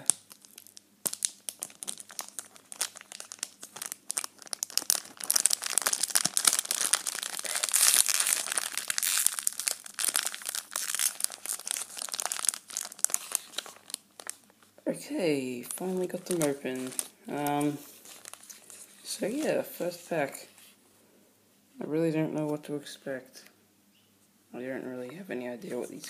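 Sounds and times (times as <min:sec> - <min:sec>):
tape peeling: 0:00.0 - 0:14.5
foil wrappers crinkling: 0:00.0 - 0:14.7, 0:15.6 - 0:20.5.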